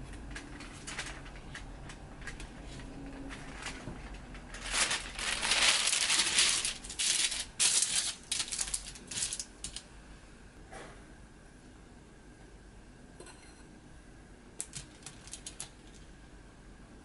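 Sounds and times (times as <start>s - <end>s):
parchment paper rustling: 0.0s - 9.9s, 14.6s - 16.1s.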